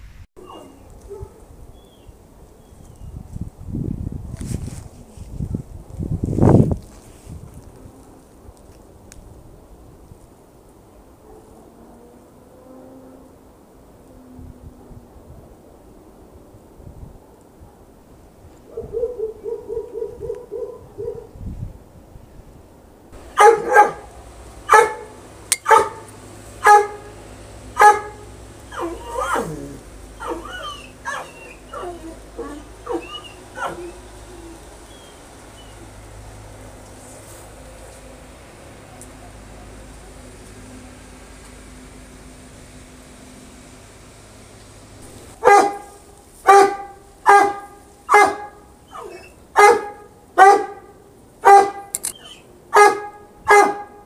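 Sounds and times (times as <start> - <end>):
dog wavering calls: 0.4 - 1.3, 23.3 - 27.2, 27.8 - 36.0, 45.4 - 53.9
dog barking: 0.4 - 1.4, 18.7 - 21.3, 23.3 - 27.1, 27.8 - 29.6, 30.2 - 34.0, 45.4 - 54.0
animal calling: 27.8 - 35.9
sharp click: 51.9 - 52.3.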